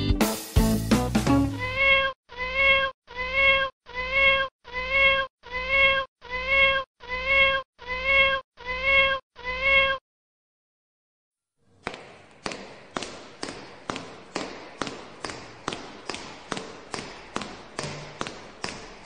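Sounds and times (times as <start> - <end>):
cat meowing: 1.6 - 10.0.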